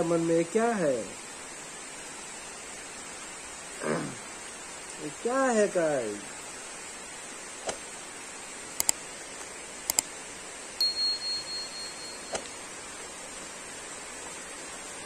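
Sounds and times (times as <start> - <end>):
rain hissing: 0.0 - 15.0
quick double clicks: 8.8 - 9.0, 9.9 - 10.1
bell ding: 10.8 - 12.6.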